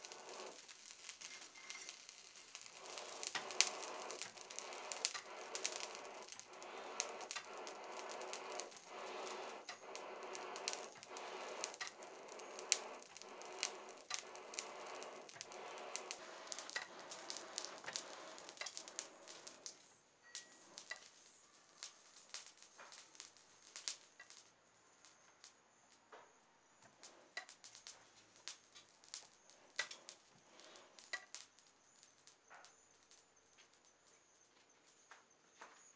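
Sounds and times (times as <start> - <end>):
bellows rush of air: 0.0 - 19.8
fire crackling and popping: 0.0 - 35.9.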